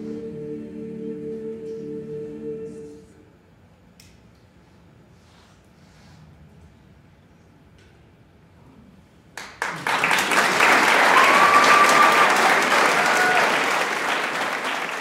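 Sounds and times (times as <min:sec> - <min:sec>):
audience applause: 0:09.4 - 0:15.0.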